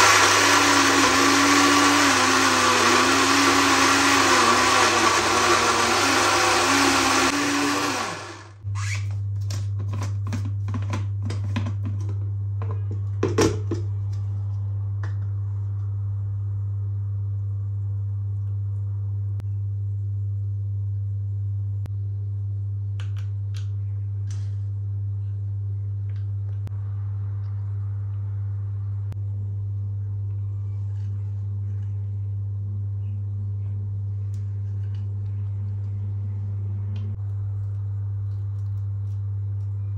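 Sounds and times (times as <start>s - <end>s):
blender running: 0.0s - 8.6s
steady low hum: 13.8s - 39.9s.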